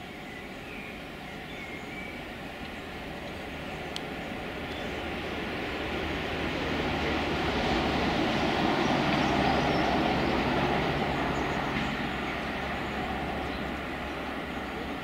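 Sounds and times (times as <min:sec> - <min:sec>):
diesel locomotive engine drone: 0:00.0 - 0:15.0.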